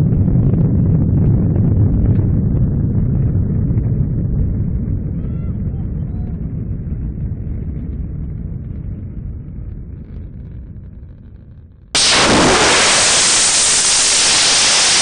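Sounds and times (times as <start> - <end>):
rocket motor roaring: 12.0 - 15.0.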